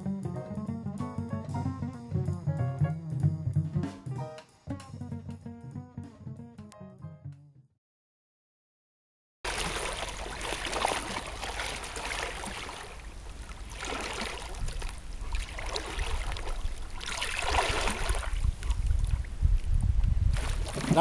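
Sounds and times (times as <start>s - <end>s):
water splashing from arm strokes: 9.5s - 19.3s, 20.3s - 21.0s
wind rumble on microphone: 14.4s - 21.0s.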